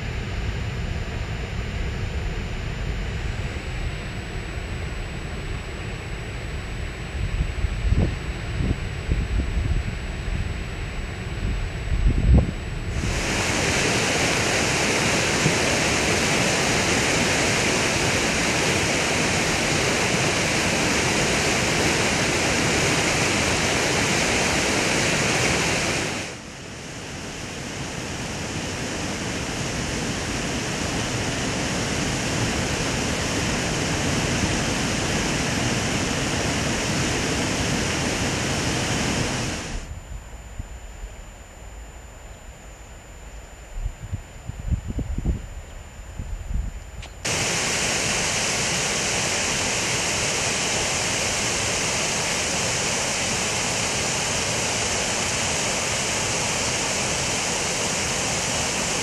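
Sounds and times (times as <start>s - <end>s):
river rushing past rocks: 13.0s - 26.4s, 27.1s - 39.8s, 47.3s - 59.0s.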